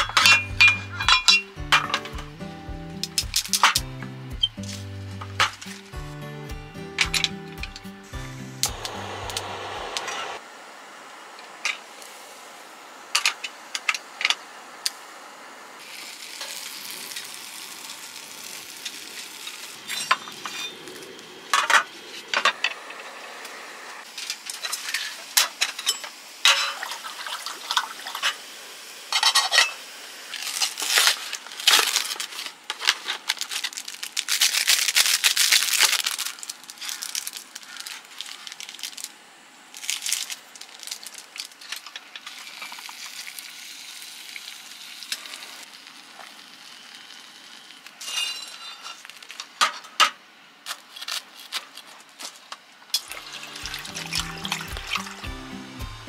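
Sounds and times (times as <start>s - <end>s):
metal kettle and lid clinking: 0.0s - 2.3s
food sizzling: 0.0s - 49.6s, 53.0s - 56.0s
foil packet tearing and crinkling: 30.3s - 43.8s, 48.9s - 49.6s, 50.6s - 52.5s.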